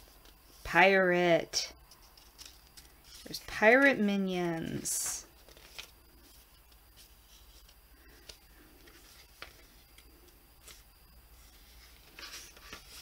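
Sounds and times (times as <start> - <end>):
fingers rubbing paper pages: 11.4 - 13.0.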